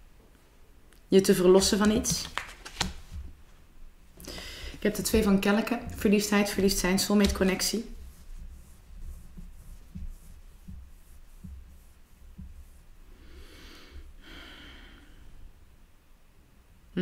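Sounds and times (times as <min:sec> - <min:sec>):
woman breathing: 0:04.2 - 0:04.9, 0:13.0 - 0:15.6.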